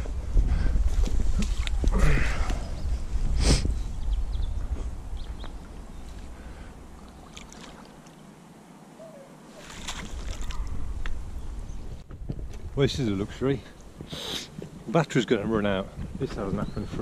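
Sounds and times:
water sloshing and splashing: 6.9 - 8.4, 9.5 - 10.9.

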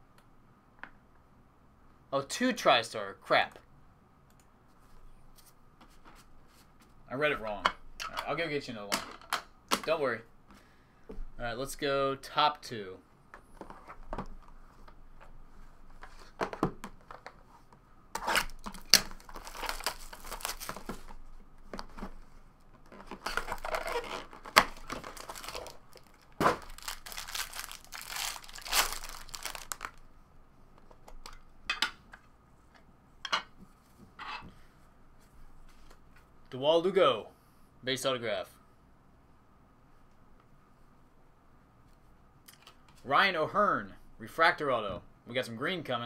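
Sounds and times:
foil pack crinkling and tearing: 18.2 - 21.2, 23.0 - 30.0.

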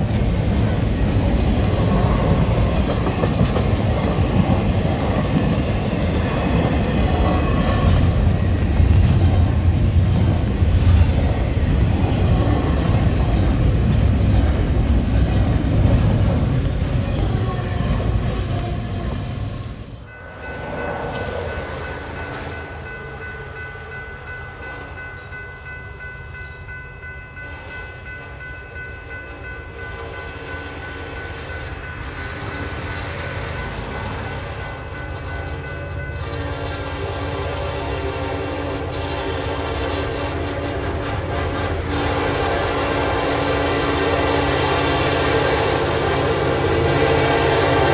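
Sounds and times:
freight train rumbling past: 0.0 - 47.9
distant locomotive air horn: 36.2 - 47.9.

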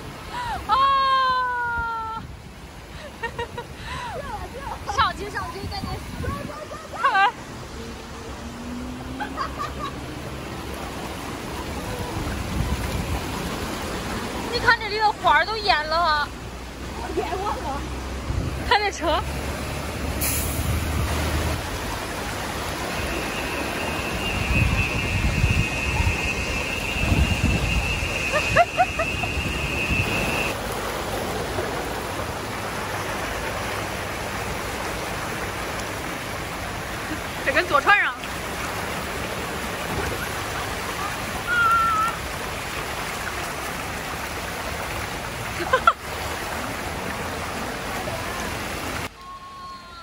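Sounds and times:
floodwater sloshing and splashing: 2.3 - 49.2
wind buffeting microphone: 3.8 - 6.9, 11.5 - 14.5, 24.3 - 30.5.

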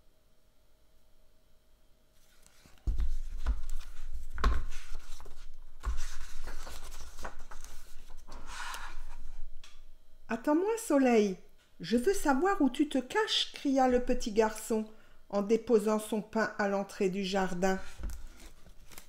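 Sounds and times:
book paper and cover rustling: 2.2 - 9.4, 17.5 - 19.0.

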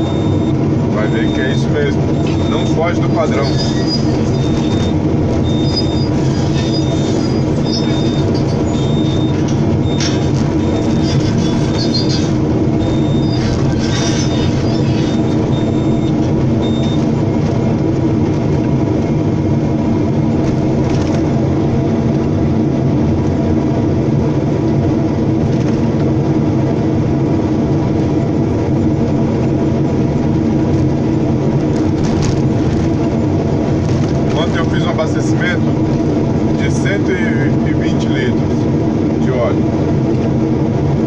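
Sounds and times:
excavator diesel engine running: 0.0 - 41.0.

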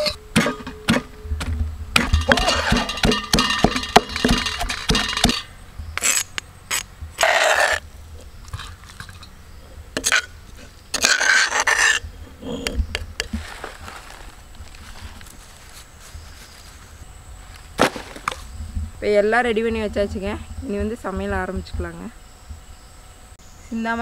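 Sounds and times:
pestle pounding in stone mortar: 2.0 - 5.5
metal scrapes and clinks: 2.2 - 6.3.

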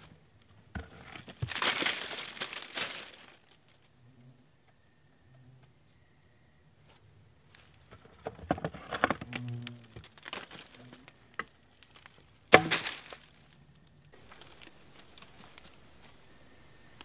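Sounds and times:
gear scraping and rustling: 0.0 - 4.0, 6.8 - 17.0
knocks on rock: 12.5 - 13.2.

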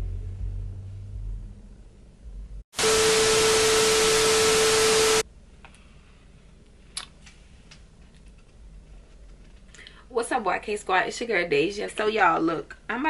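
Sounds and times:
loud static hiss: 2.8 - 5.2
steady mid-pitched tone: 2.8 - 5.2.

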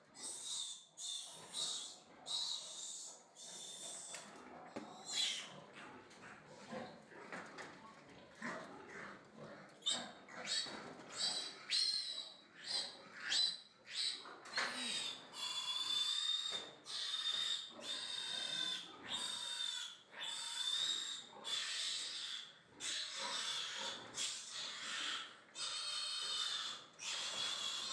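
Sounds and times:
piglet squealing: 5.0 - 5.5, 14.8 - 27.9.

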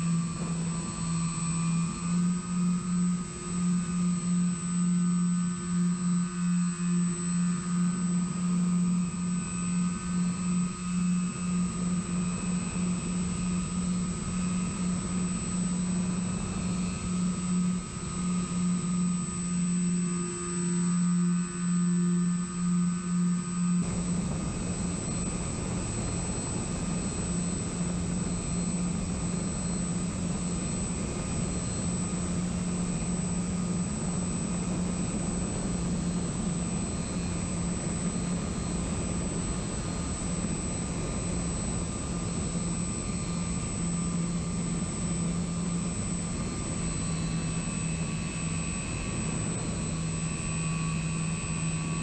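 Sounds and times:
electric motor and propeller hum: 0.0 - 52.0.

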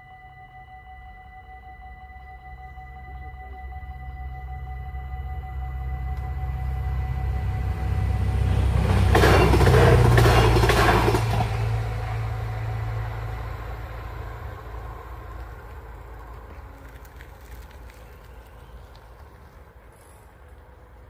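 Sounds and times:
train engine rumble: 0.0 - 21.0
train wheel knocks and rail clatter: 8.7 - 12.5.

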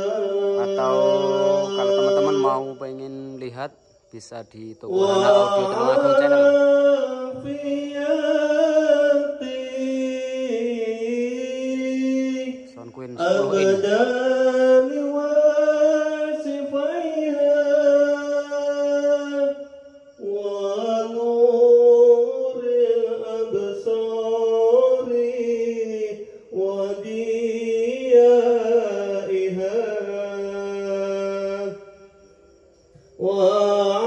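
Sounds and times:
man singing into a microphone: 0.0 - 3.6, 4.8 - 19.6, 20.2 - 31.8, 33.2 - 34.0.

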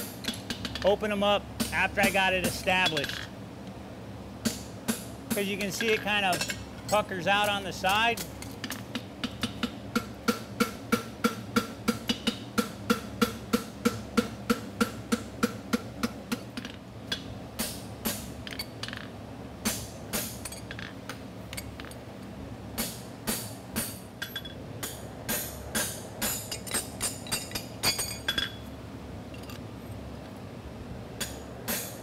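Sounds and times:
fan humming: 0.0 - 32.0.

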